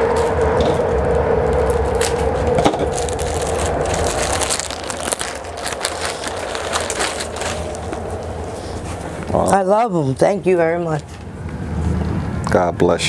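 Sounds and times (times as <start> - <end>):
plastic bag crinkling: 0.0 - 9.4
steady background hum: 0.0 - 13.0.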